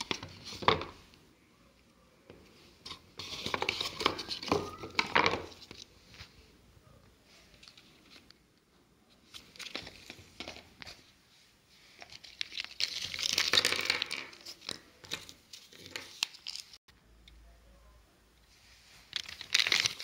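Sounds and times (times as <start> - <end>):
paper and plastic crinkling: 2.8 - 6.4, 9.2 - 11.1, 11.8 - 16.8, 18.8 - 20.0.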